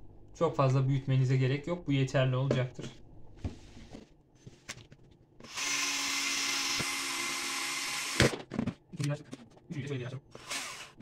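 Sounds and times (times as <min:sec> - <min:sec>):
cordless drill boring plastic: 0:05.4 - 0:08.3, 0:10.3 - 0:11.0.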